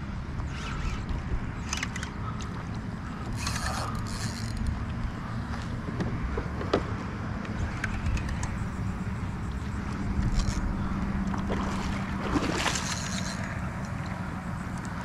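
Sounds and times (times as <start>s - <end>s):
fishing reel whirring: 0.4s - 2.2s, 3.0s - 5.4s, 7.8s - 11.0s, 12.6s - 15.0s.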